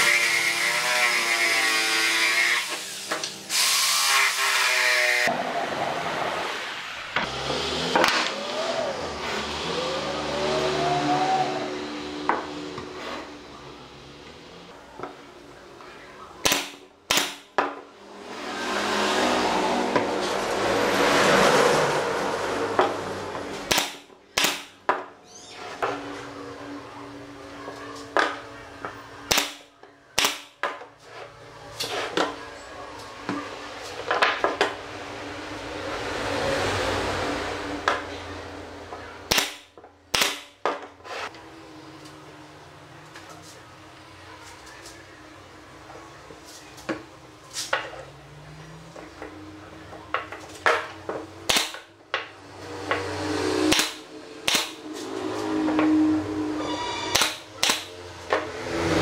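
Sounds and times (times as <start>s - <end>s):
nail gun firing: 16.4s - 17.5s, 23.7s - 24.8s, 29.3s - 29.6s, 30.2s - 30.6s, 39.3s - 40.6s, 51.5s - 51.9s, 53.7s - 54.8s, 57.1s - 58.0s.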